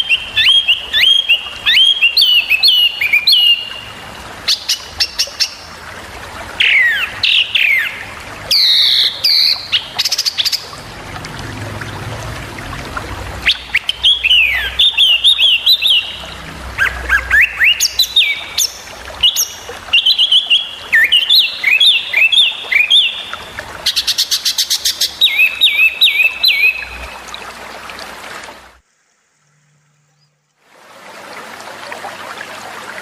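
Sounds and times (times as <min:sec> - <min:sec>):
songbird chirping rapidly: 0:00.0 - 0:03.9, 0:06.6 - 0:10.7, 0:13.4 - 0:27.2.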